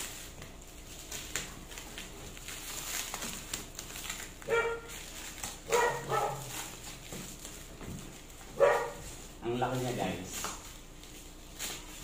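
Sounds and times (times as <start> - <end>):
plastic wrap crinkling: 0.0 - 12.0
dog yipping: 4.5 - 4.9, 5.7 - 6.6, 8.6 - 9.0.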